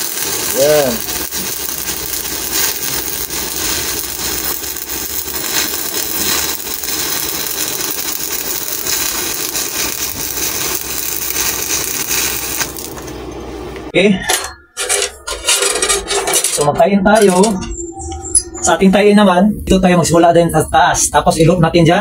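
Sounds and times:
welding arc crackling: 0.0s - 13.9s.

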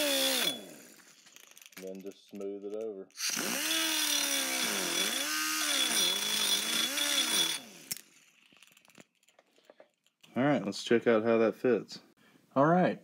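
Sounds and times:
die grinder whining: 0.0s - 2.1s, 3.1s - 8.2s.

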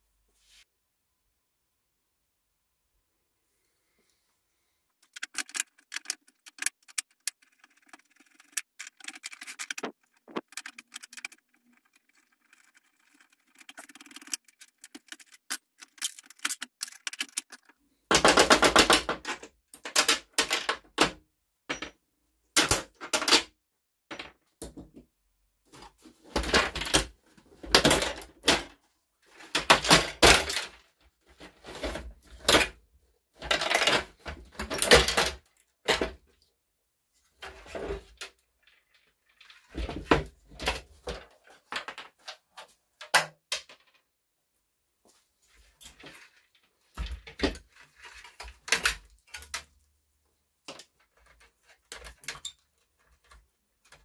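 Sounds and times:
tools and plastic housing clattering: 5.0s - 21.1s.

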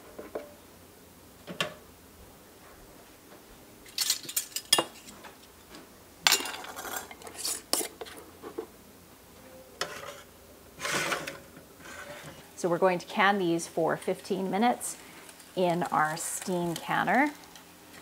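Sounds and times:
glass jars and metal lids clinking: 6.3s - 7.9s.

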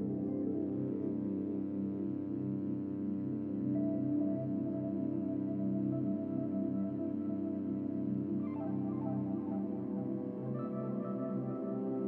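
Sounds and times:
ambient music with pulsing tones: 0.0s - 12.0s.

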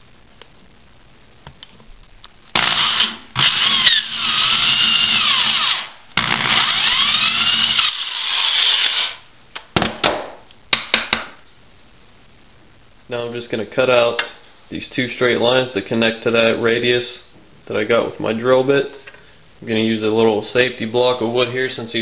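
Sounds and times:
electric drill boring hardboard: 2.6s - 9.2s.

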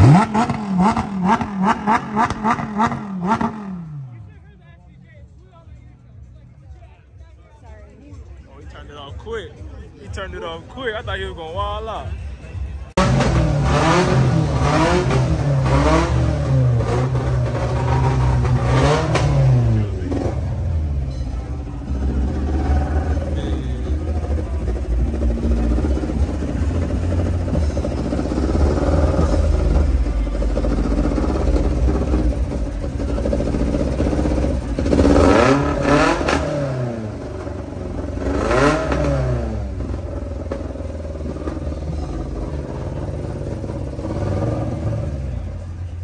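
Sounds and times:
car engine revving: 0.0s - 4.4s, 12.9s - 46.0s
car engines rumbling: 0.0s - 46.0s.

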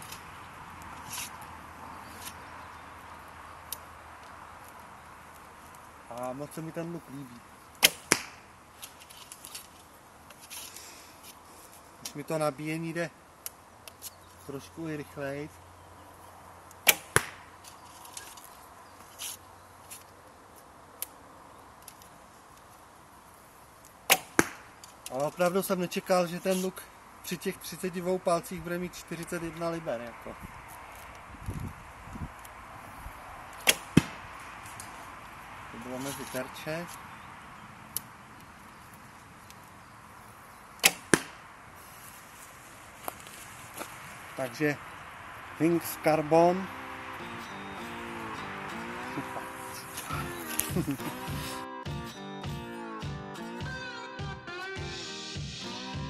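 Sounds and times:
arrow hitting target: 7.8s - 8.4s, 16.8s - 17.4s, 24.1s - 24.7s, 33.6s - 34.2s, 40.8s - 41.4s.

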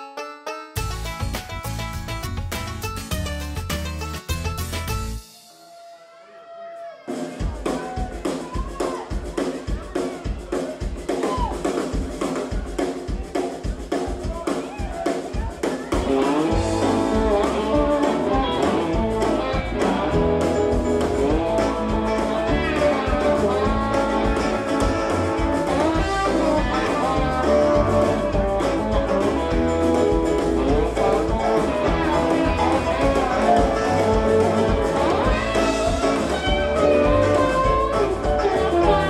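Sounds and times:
guitar-led blues music: 0.0s - 5.2s, 16.0s - 39.0s.

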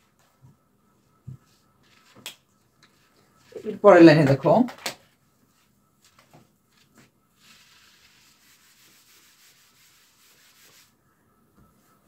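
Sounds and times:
eraser rubbing on whiteboard: 5.6s - 11.0s.

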